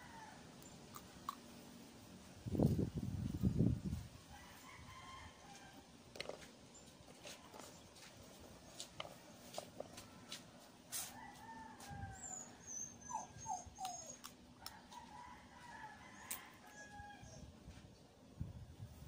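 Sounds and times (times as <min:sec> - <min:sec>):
animal whining: 0:12.1 - 0:14.4.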